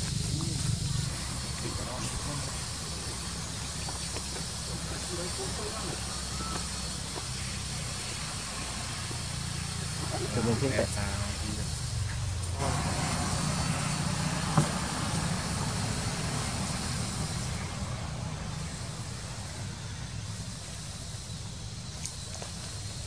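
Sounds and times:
hiss: 0:00.0 - 0:23.0
low hum: 0:07.2 - 0:23.0.

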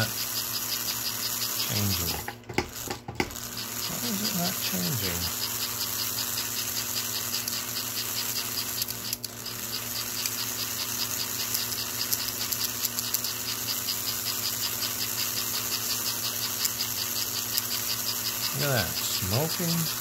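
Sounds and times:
toy train motor humming and ticking: 0:00.0 - 0:20.0.

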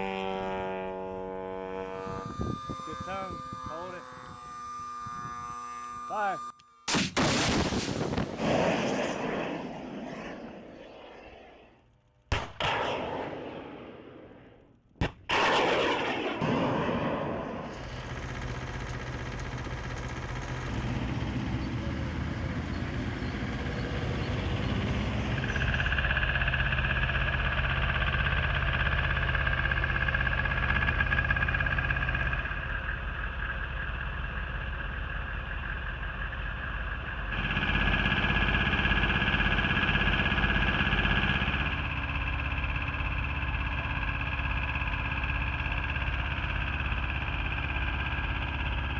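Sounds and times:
steady hum shifting in pitch: 0:00.0 - 0:07.6, 0:16.7 - 0:48.9
missile launch roar: 0:06.9 - 0:11.8, 0:15.3 - 0:18.1.

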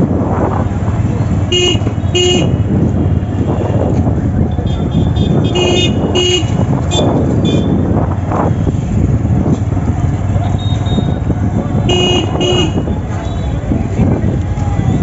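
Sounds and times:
street traffic noise: 0:00.0 - 0:15.0
car horn beeps: 0:01.5 - 0:02.7, 0:04.5 - 0:07.8, 0:10.4 - 0:13.5
higher car horn beeps: 0:01.5 - 0:02.7, 0:04.7 - 0:07.8, 0:11.8 - 0:13.4.

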